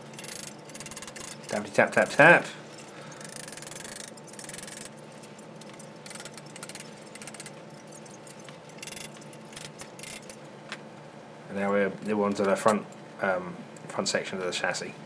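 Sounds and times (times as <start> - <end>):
metal clinks and rattles: 0.0 - 10.4
faint steady hum: 0.0 - 15.0.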